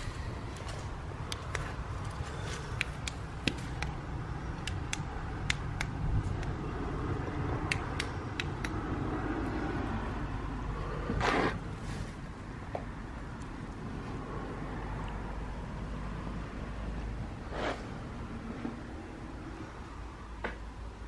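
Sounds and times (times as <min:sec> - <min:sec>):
rustle or scrape: 0:11.2 - 0:12.2, 0:17.4 - 0:18.0.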